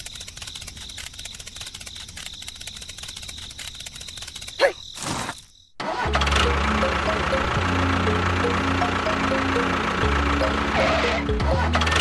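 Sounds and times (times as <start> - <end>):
insects trilling: 0.0 - 5.8.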